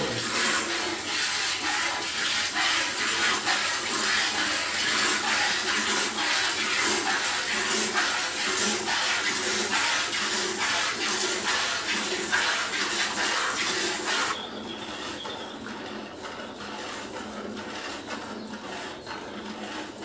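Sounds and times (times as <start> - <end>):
milk squirting into plastic bucket: 0.0 - 14.4.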